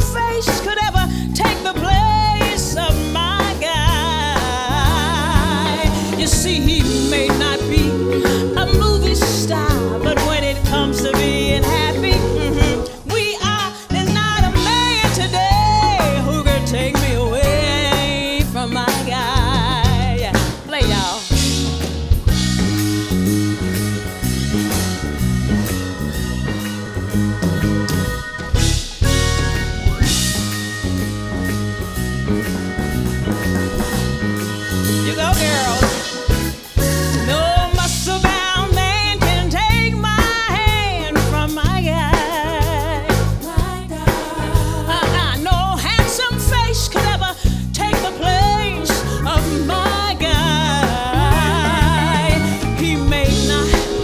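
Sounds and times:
drum kit hits: 0.0s - 13.2s, 14.1s - 54.0s
woman singing: 0.0s - 21.6s, 35.0s - 36.3s, 37.1s - 54.0s
electric bass line: 0.0s - 54.0s
soul band playing: 0.0s - 54.0s.

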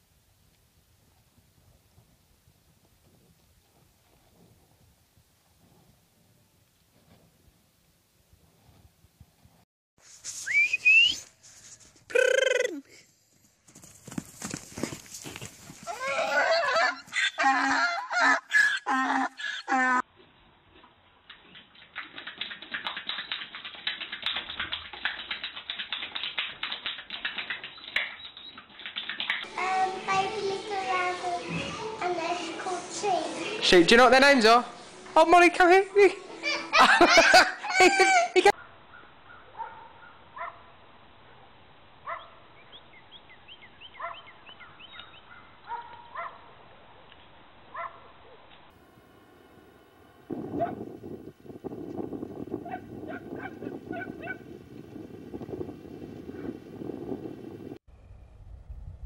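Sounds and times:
horse clicking with its mouth: 20.8s - 29.5s.

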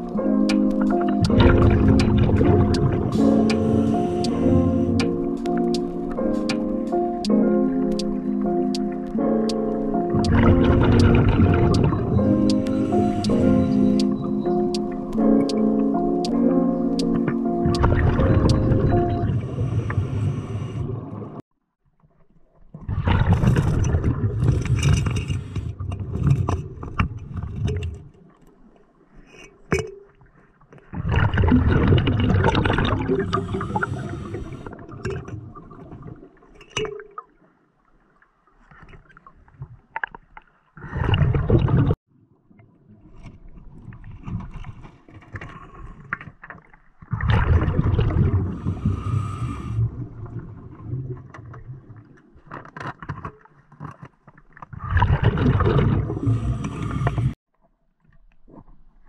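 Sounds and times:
underwater exhaled bubbles: 0.0s - 6.2s, 10.1s - 14.7s, 17.2s - 21.4s, 22.7s - 28.3s, 30.8s - 39.8s, 40.8s - 53.2s, 54.5s - 57.4s.

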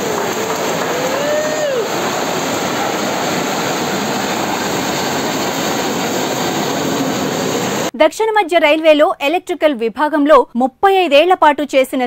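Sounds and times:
spark fountains hissing: 0.0s - 7.9s.

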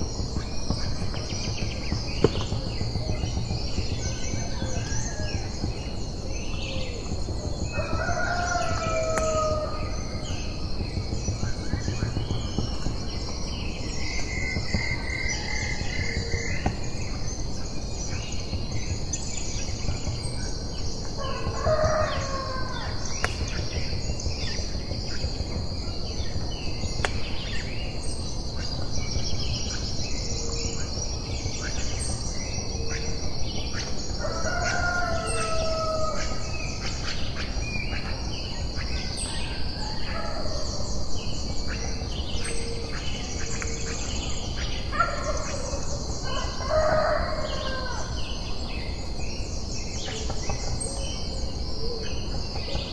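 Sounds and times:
high insect drone: 0.0s - 52.9s
small birds chirping: 0.0s - 52.9s
rooster crowing: 7.7s - 9.9s, 21.2s - 22.9s, 34.2s - 36.4s, 46.2s - 48.2s.

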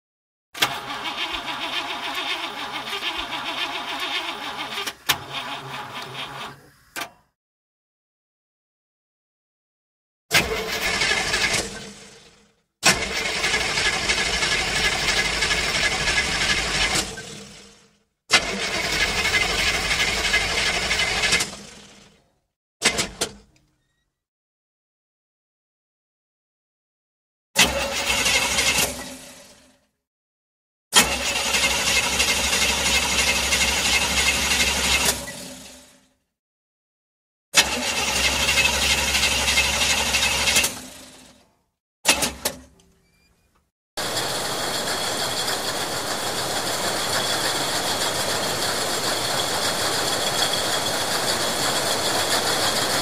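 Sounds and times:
car engine running: 44.0s - 53.0s
mechanical machine noise: 44.0s - 53.0s.

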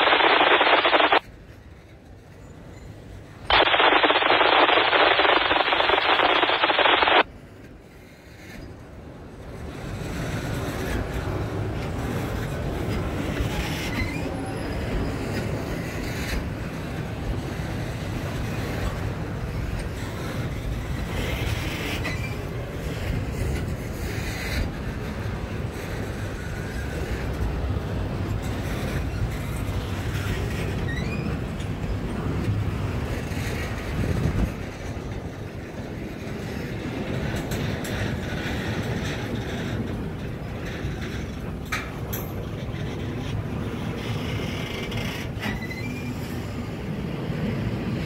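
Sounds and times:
loud noise: 0.0s - 1.2s, 3.5s - 7.3s
train wheels rumbling on rails: 1.2s - 3.5s, 7.2s - 48.0s
wheels clacking over rail joints: 9.4s - 46.6s.

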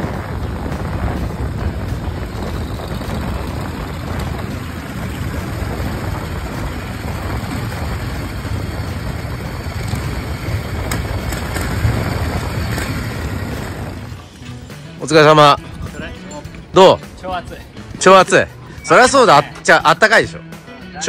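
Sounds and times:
motorcycle engine rumble: 0.0s - 15.0s
road noise: 0.0s - 20.7s
wind: 0.0s - 21.0s.

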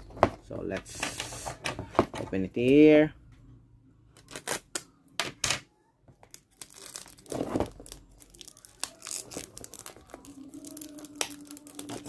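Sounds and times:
shrink wrap crinkling and tearing: 6.2s - 12.0s.

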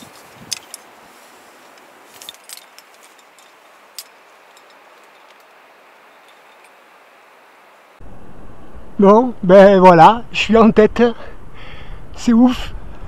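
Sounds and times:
metallic clinks of climbing gear: 0.0s - 7.6s
faint steady hiss: 0.0s - 13.0s.

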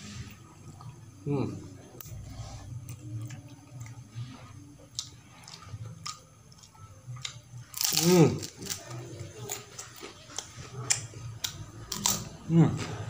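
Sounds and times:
person chewing with mouth clicks: 4.8s - 12.2s.

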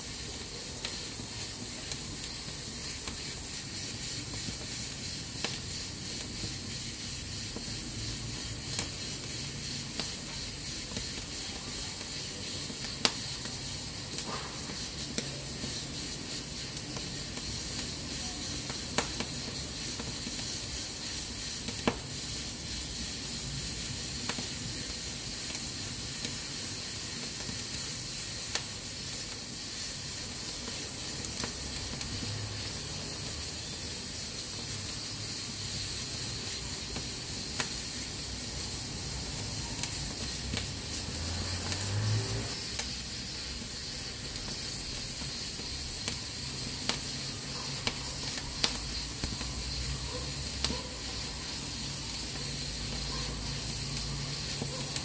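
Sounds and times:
pressure cooker hissing steam: 0.0s - 55.0s
firewood crackling: 32.9s - 55.0s.

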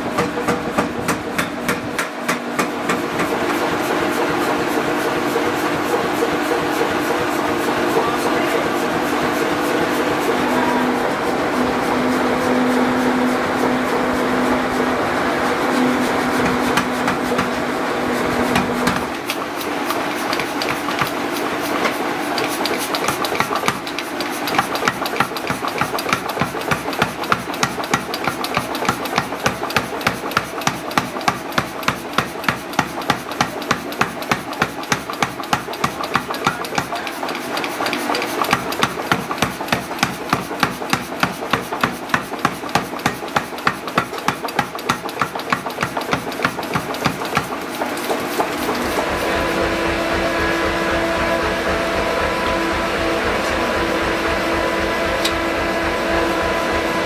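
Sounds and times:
power hammer blows on hot steel: 0.0s - 57.0s
motor hum: 43.6s - 57.0s.

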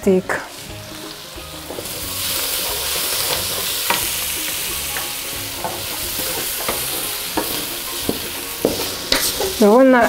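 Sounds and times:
onions sizzling in oil: 0.0s - 10.0s
wooden spoon knocking on pan: 1.6s - 9.8s.

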